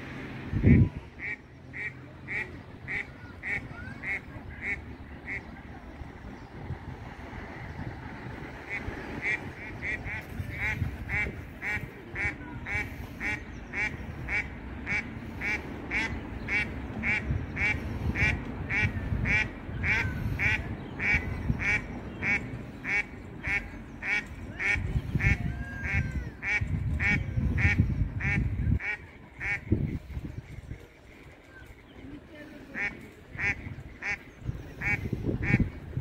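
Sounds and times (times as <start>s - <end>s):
water bird calling: 7.6s - 29.7s.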